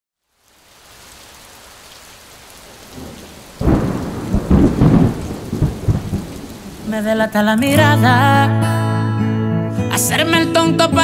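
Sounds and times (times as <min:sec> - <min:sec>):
steady rain: 0:00.1 - 0:07.8
thunder crack and rumble: 0:02.9 - 0:06.9.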